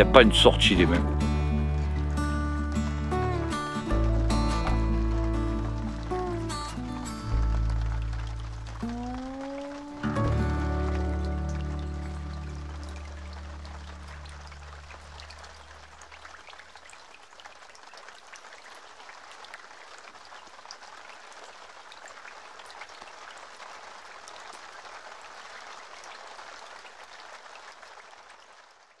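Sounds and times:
low closing music: 0:00.0 - 0:15.0
crackling hiss with clicks: 0:01.7 - 0:29.0.

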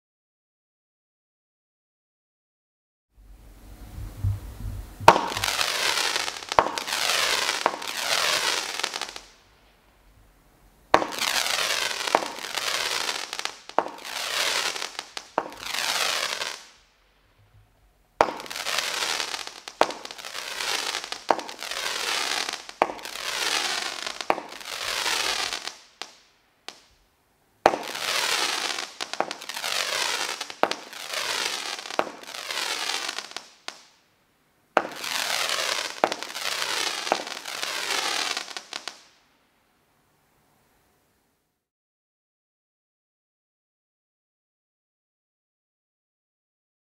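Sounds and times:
firework pops with hiss: 0:04.2 - 0:09.8, 0:10.9 - 0:27.0, 0:27.6 - 0:34.0, 0:34.8 - 0:39.2.

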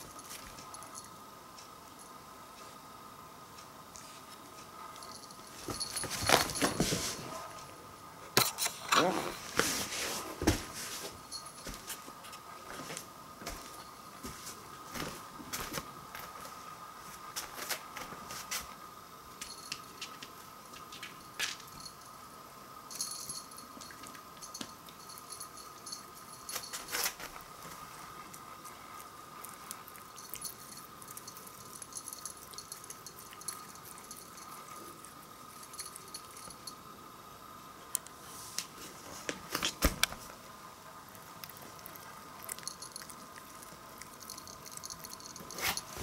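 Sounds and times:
light jingling rattles: 0:30.0 - 0:34.9, 0:44.1 - 0:46.0.

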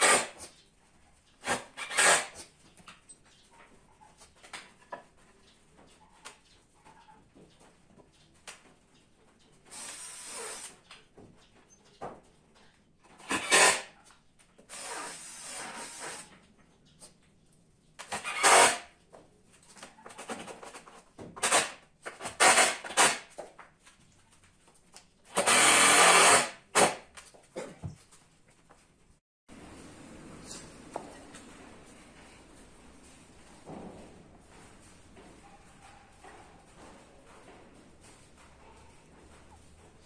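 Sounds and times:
power drill bursts: 0:01.5 - 0:02.3, 0:09.7 - 0:10.7, 0:13.2 - 0:13.8, 0:14.7 - 0:16.3, 0:18.1 - 0:18.8, 0:21.4 - 0:23.2, 0:25.3 - 0:27.0.

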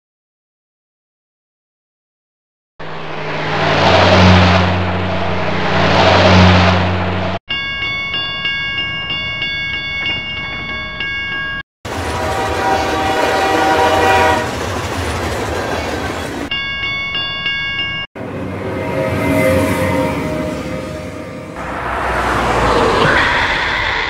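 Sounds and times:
road vehicle: 0:02.8 - 0:07.4, 0:18.2 - 0:24.0
train rail noise: 0:02.8 - 0:07.4, 0:11.9 - 0:17.0, 0:18.2 - 0:24.0
level-crossing warning bell: 0:07.5 - 0:11.6, 0:16.5 - 0:21.4
train horn: 0:11.9 - 0:14.6, 0:18.3 - 0:21.7.

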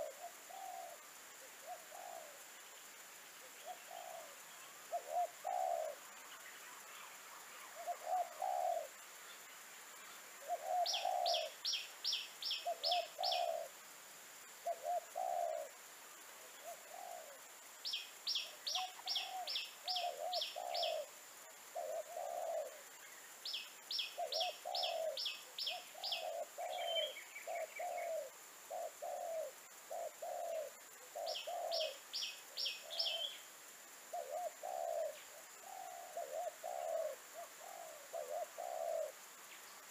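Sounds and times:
dove cooing: 0:00.0 - 0:02.4, 0:03.4 - 0:06.0, 0:07.8 - 0:09.0, 0:10.4 - 0:11.6, 0:12.5 - 0:13.8, 0:14.6 - 0:15.8, 0:16.4 - 0:17.5, 0:18.3 - 0:22.9, 0:24.0 - 0:33.4, 0:34.1 - 0:39.2.

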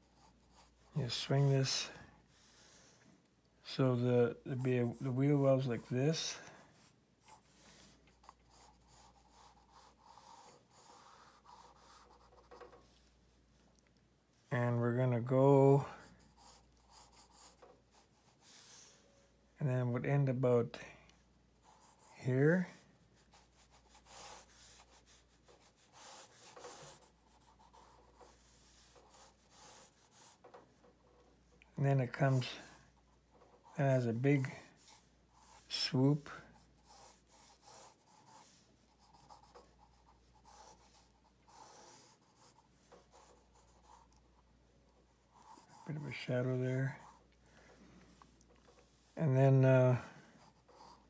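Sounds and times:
pencil scratching on paper: 0:00.0 - 0:03.0, 0:04.6 - 0:13.0, 0:15.8 - 0:19.1, 0:21.6 - 0:47.8, 0:48.6 - 0:51.0.

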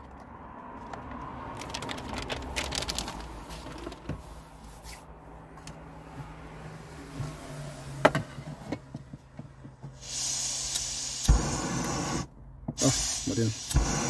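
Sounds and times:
gas burner hissing: 0:10.0 - 0:14.0.

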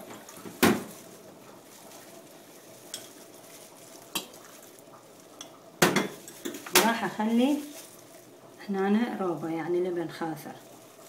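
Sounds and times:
faint steady hiss: 0:00.0 - 0:11.0
kitchen utensils clinking: 0:05.4 - 0:07.2.

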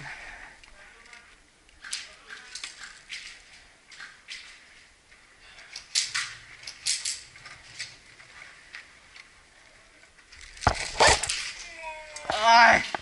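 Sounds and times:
gear rustling: 0:01.0 - 0:13.0
airsoft rifle shots: 0:10.7 - 0:11.4.

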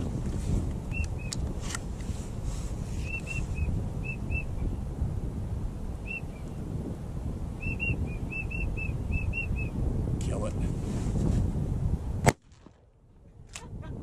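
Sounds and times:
wind rumble on microphone: 0:00.0 - 0:14.0
duck whistles: 0:07.6 - 0:09.7.

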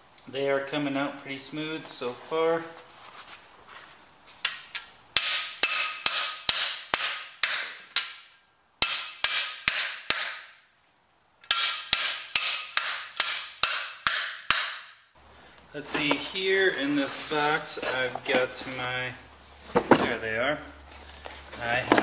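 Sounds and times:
hammer striking metal bar: 0:04.4 - 0:10.6, 0:11.5 - 0:15.0.

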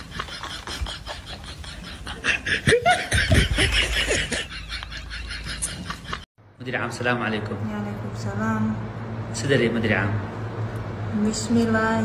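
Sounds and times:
person laughing: 0:00.0 - 0:06.3.

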